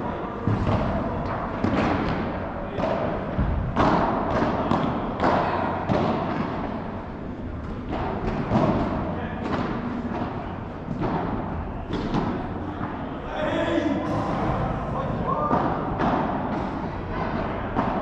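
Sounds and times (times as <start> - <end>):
padel ball hits echoing: 14.0 - 18.0.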